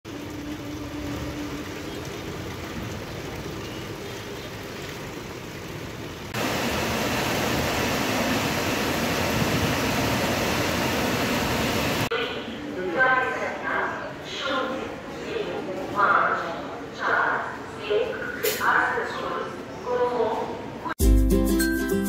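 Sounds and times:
rain pouring on street and trees: 0.1s - 12.1s.

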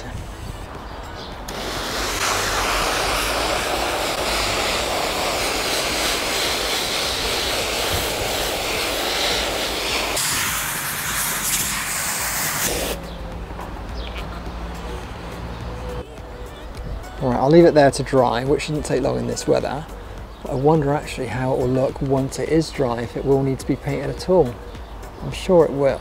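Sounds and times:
hose spray hissing on material: 1.5s - 13.0s.

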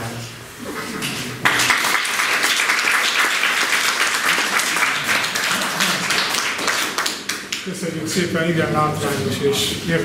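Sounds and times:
audience applauding: 1.4s - 7.7s.

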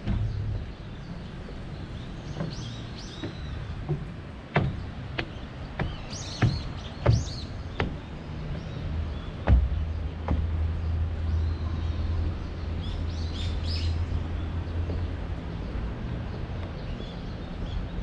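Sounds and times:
low background rumble: 0.0s - 18.0s
small birds chirping: 0.0s - 18.0s.

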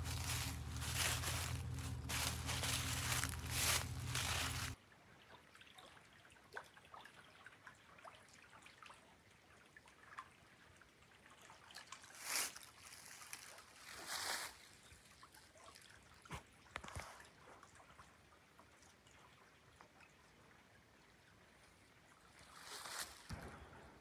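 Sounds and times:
river trickling and lapping: 0.0s - 23.3s
ticks of water: 5.2s - 12.6s, 15.2s - 20.2s.

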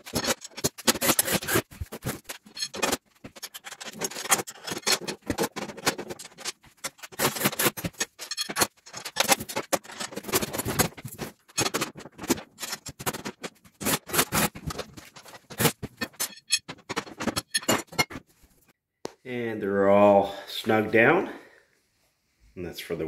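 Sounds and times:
metal clicks and scrapes: 0.0s - 18.2s.

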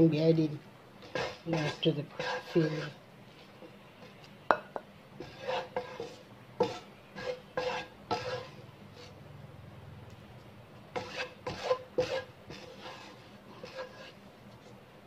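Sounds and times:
spatula scraping frying pan: 1.0s - 4.2s, 5.2s - 9.2s, 10.9s - 14.2s.

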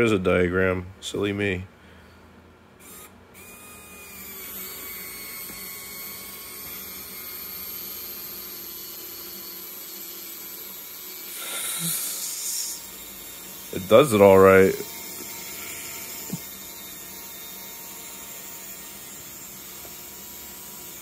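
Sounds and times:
electric winch motor whining: 2.8s - 21.0s.

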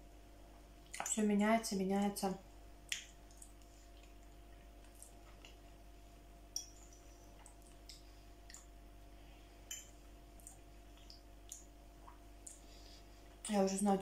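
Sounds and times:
faint steady hum: 0.0s - 14.0s
chewing clicks: 7.4s - 8.7s.

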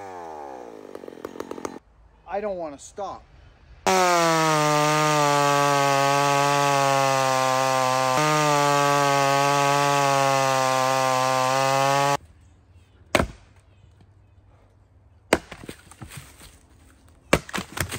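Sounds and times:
chainsaw cutting log: 0.0s - 1.8s, 3.9s - 12.2s.

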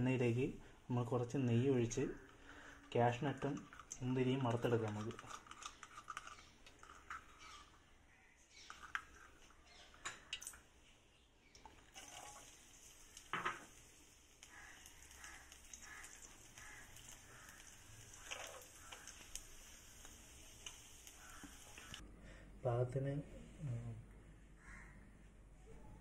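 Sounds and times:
raisins sizzling in oil: 11.6s - 22.0s.

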